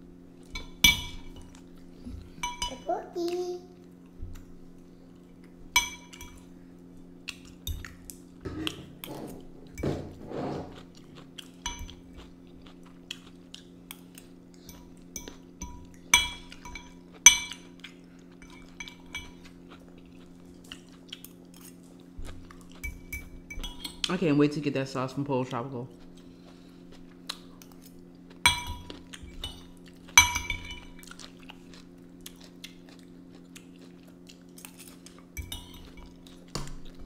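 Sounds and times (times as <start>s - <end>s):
steady low hum: 0.0s - 37.0s
forks clinking on plates: 2.4s - 2.8s, 14.7s - 17.8s, 18.4s - 19.5s, 28.4s - 31.1s, 34.6s - 36.4s.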